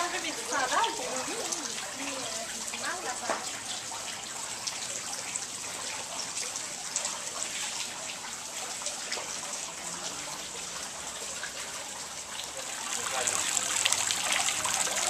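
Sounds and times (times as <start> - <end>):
fountain water splashing: 0.0 - 15.0
water dripping: 0.0 - 15.0.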